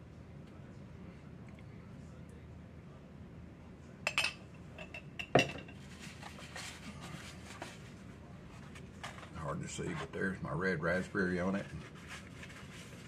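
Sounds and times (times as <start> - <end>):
soft scraping of spreading jam: 5.8 - 10.3.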